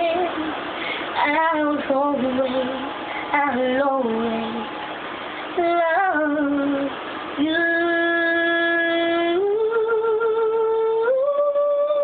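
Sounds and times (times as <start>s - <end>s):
girl singing: 0.0s - 4.8s, 5.4s - 12.0s
breath: 0.7s - 1.2s, 3.1s - 3.3s.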